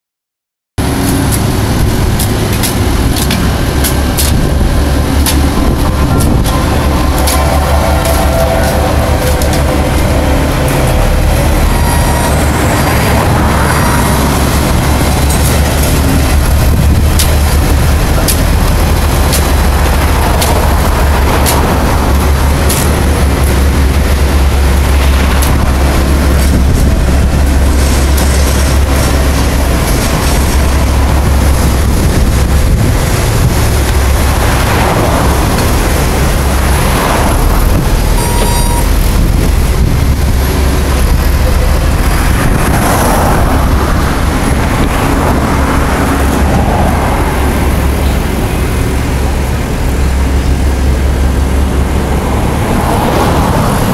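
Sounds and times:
vehicle rumbling in motion: 0:00.8 - 0:53.9.

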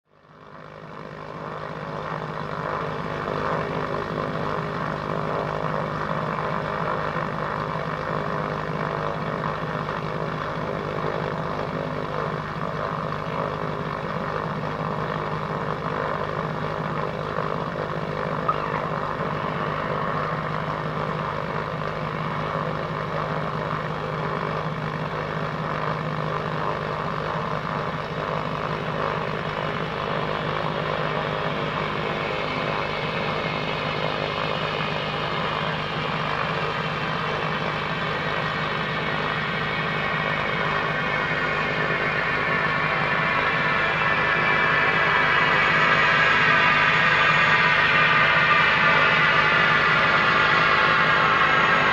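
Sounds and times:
turboprop engine droning: 0:00.1 - 0:51.9
short click: 0:18.5 - 0:18.9.

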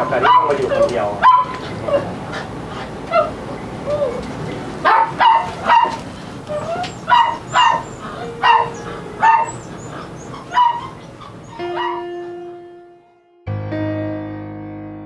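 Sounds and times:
dog barking: 0:00.0 - 0:02.1, 0:04.8 - 0:12.4
soft sustained music notes: 0:07.4 - 0:15.0.

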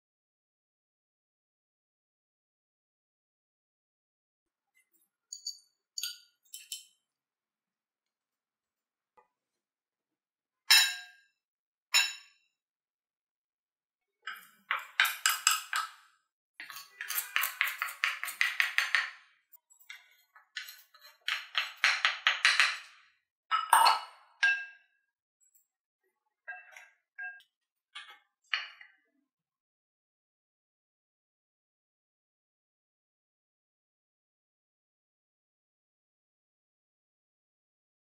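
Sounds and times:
glass clinks: 0:05.3 - 0:07.0, 0:23.5 - 0:24.7.

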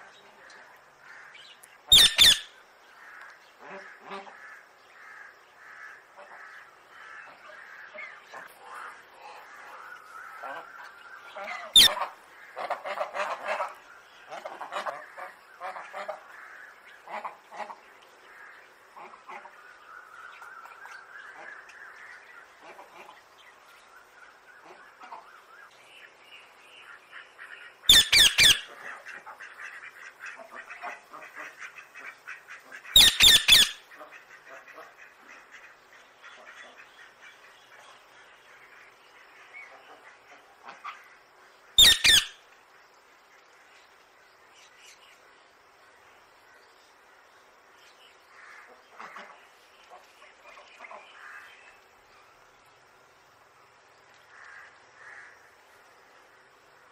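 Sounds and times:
parakeet chattering: 0:01.9 - 0:02.5, 0:27.9 - 0:28.7, 0:33.0 - 0:33.8, 0:41.8 - 0:42.4
parakeet squawks: 0:01.9 - 0:02.5, 0:11.7 - 0:12.1, 0:27.9 - 0:28.7, 0:32.9 - 0:33.8, 0:41.8 - 0:42.4.

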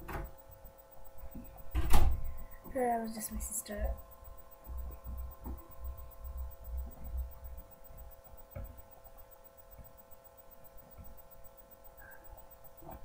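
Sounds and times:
electrical hum: 0:00.0 - 0:13.0
soft low thumps: 0:03.4 - 0:11.6.

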